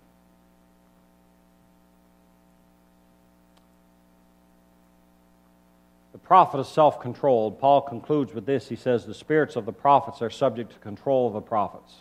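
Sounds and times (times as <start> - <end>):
faint mains hum: 0.0 - 12.0
faint click: 3.5 - 3.8.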